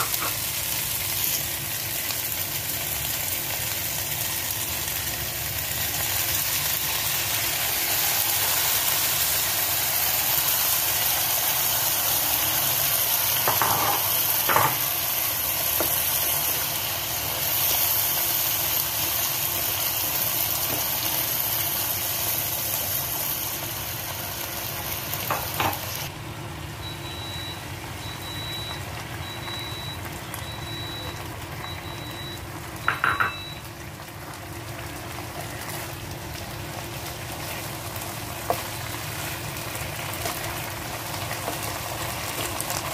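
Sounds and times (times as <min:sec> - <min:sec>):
food sizzling in a frying pan: 0:00.0 - 0:42.9
short high beeps: 0:26.8 - 0:33.6.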